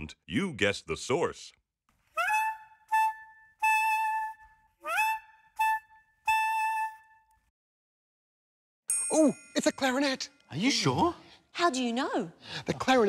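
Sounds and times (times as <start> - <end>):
clarinet playing: 2.2 - 7.5.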